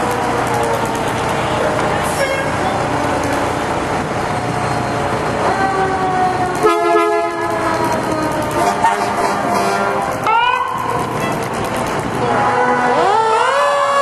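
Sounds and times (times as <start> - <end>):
steady background noise: 0.0 - 14.0
fire engine air horn: 1.6 - 2.8, 5.4 - 11.4, 12.2 - 14.0.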